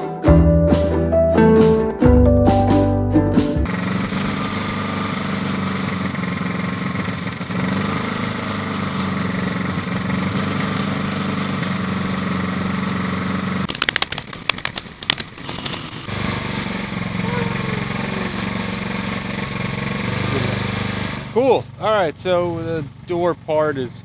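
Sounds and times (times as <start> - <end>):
generator engine running: 2.0 - 23.7
pneumatic stapler firing: 13.7 - 16.1.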